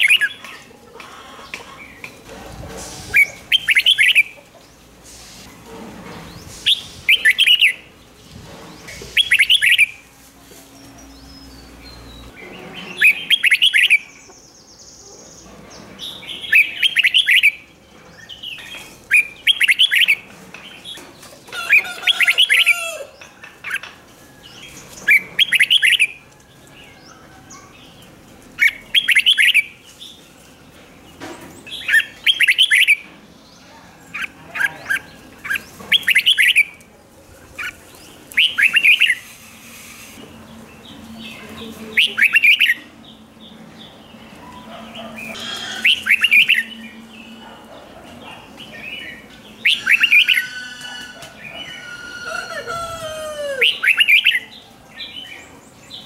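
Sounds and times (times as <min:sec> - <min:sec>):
bird warbling song: 0:03.1 - 0:04.4, 0:06.1 - 0:10.0, 0:10.8 - 0:21.1, 0:31.1 - 0:36.8, 0:37.6 - 0:56.0.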